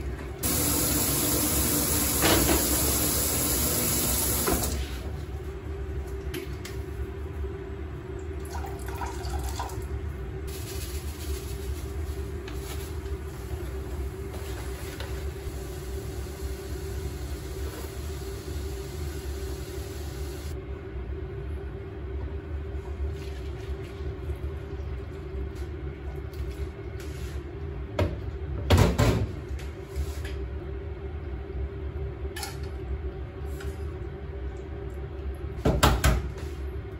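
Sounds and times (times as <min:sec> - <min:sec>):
gas burner hissing: 0:00.4 - 0:05.0, 0:15.4 - 0:20.6.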